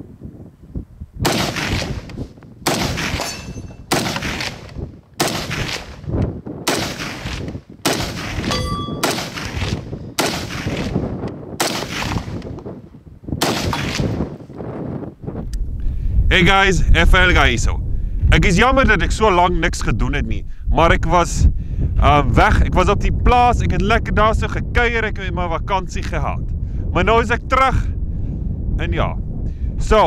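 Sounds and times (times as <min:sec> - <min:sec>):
rifle shots echoing: 0:01.2 - 0:06.0, 0:06.6 - 0:11.0, 0:11.6 - 0:12.4, 0:13.4 - 0:14.2
short metallic ring: 0:03.2 - 0:03.9, 0:08.5 - 0:09.4.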